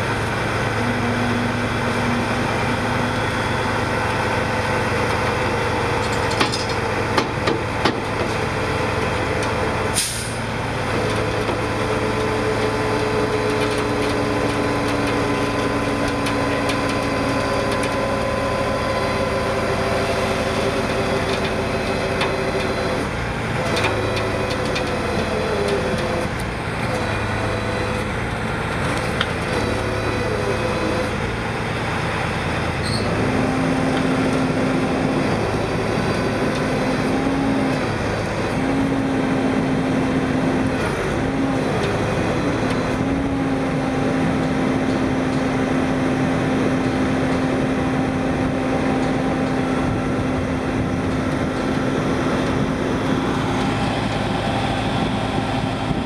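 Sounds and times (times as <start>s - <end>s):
tow truck diesel engine running: 0.0s - 56.0s.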